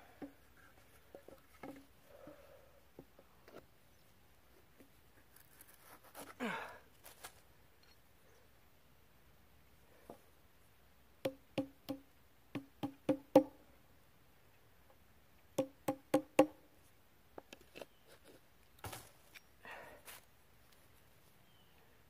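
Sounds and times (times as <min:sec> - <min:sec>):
short rustle: 0:05.2 - 0:07.5
hammer striking wood: 0:15.6 - 0:16.6.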